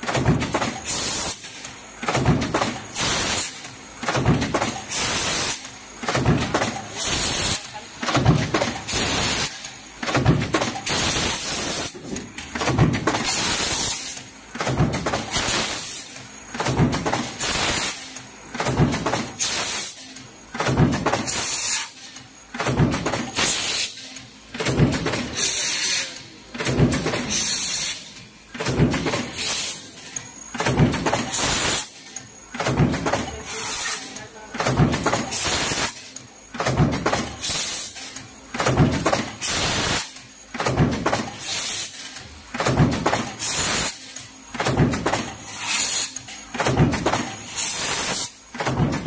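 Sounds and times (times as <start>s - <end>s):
punch press stroke clatter: 44.6s - 49.0s.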